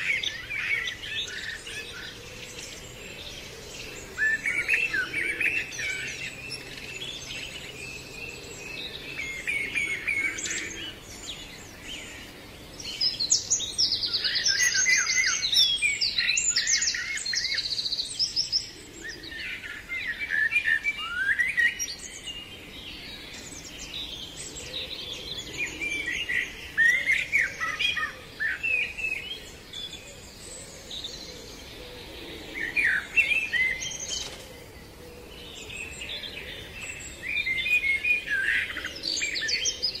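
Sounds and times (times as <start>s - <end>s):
songbirds singing: 0.0s - 40.0s.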